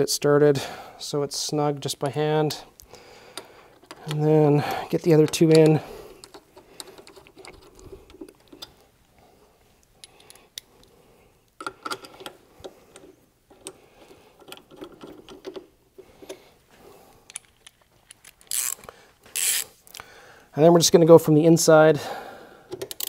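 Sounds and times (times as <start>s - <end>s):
metallic clicking of bolts: 5.0s - 8.8s, 22.7s - 23.0s.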